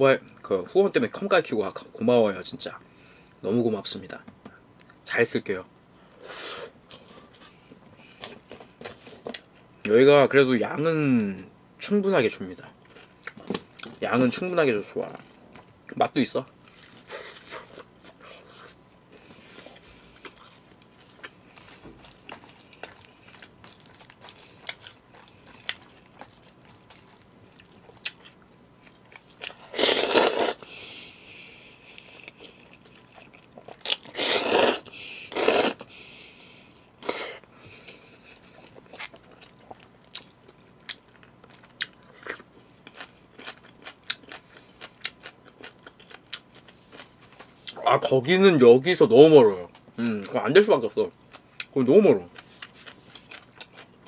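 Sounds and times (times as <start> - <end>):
chewing and mouth smacking: 16.6 - 29.6, 37.7 - 48.1, 52.4 - 54.0
loud noodle slurps: 29.7 - 30.6, 34.1 - 35.8.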